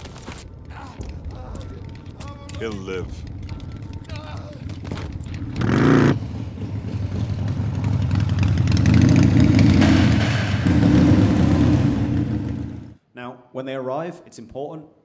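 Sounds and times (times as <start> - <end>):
motorcycle engine revving: 5.2 - 13.0.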